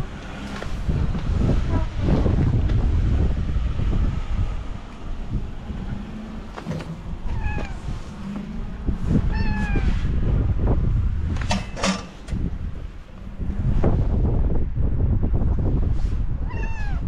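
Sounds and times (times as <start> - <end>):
wind rumbling on microphone: 0.0 - 17.0
cat meowing: 7.2 - 7.8, 9.3 - 10.0, 16.4 - 17.0.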